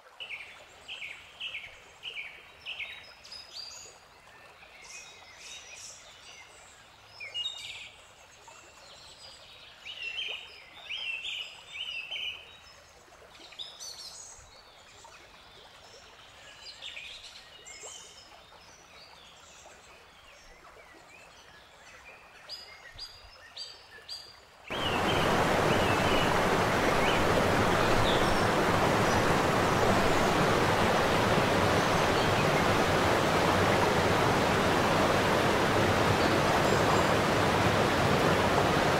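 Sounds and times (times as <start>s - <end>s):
faint outdoor ambience: 24.7s - 38.9s
waterfall rushing: 24.7s - 38.9s.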